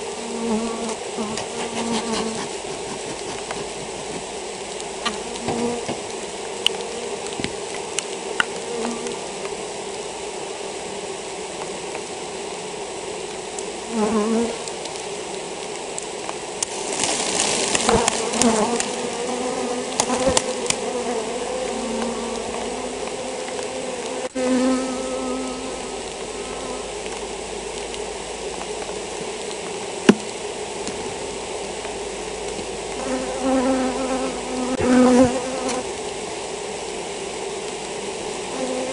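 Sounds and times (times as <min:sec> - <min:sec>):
honeybees buzzing: 0:00.0 - 0:38.9.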